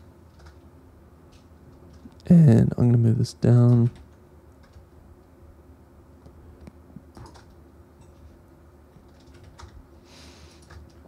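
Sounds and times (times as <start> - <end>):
low room hum: 0.0 - 11.0
keyboard and mouse clicks: 0.3 - 0.7, 6.6 - 8.2, 9.0 - 9.8, 10.6 - 11.0.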